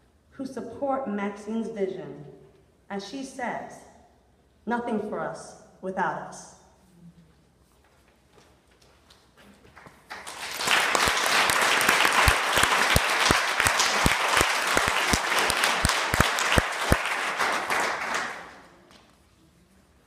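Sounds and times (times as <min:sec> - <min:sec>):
audience applauding: 0:09.6 - 0:18.8.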